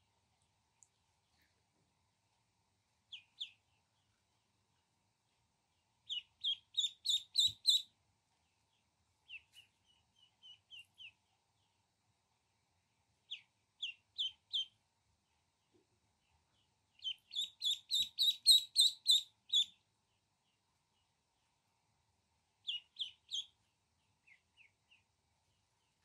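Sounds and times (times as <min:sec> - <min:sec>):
ducklings peeping: 0:03.1 - 0:03.8, 0:06.0 - 0:07.9, 0:09.2 - 0:11.7, 0:13.3 - 0:14.8, 0:16.6 - 0:19.8, 0:22.6 - 0:25.1.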